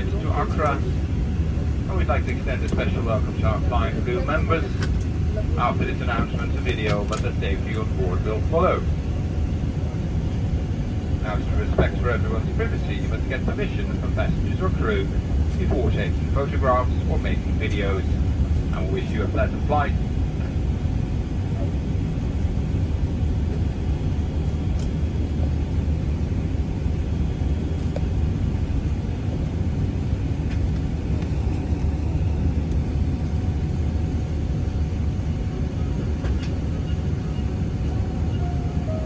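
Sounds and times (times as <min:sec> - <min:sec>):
aircraft cabin rumble: 0:00.0 - 0:39.0
faint steady whine: 0:00.0 - 0:39.0.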